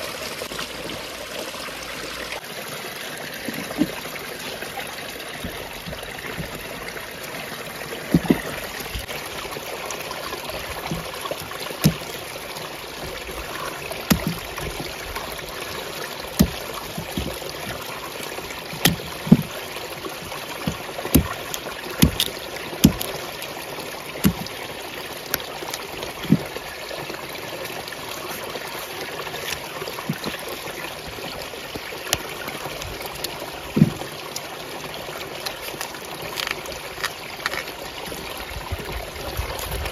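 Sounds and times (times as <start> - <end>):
running water trickling: 0.0 - 39.9
knife chopping roots: 10.6 - 12.3, 13.0 - 26.5.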